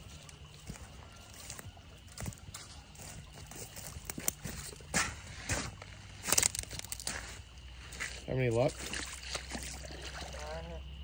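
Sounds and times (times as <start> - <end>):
footsteps in dry grass and mud: 0.0 - 10.4.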